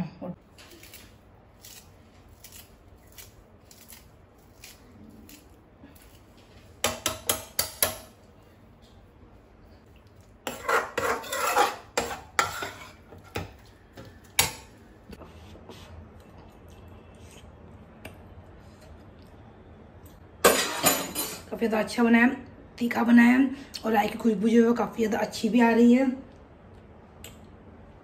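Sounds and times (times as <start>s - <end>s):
metal spatula tapping: 6.8s - 8.1s
spatula scraping and clinking in pot: 10.4s - 13.5s.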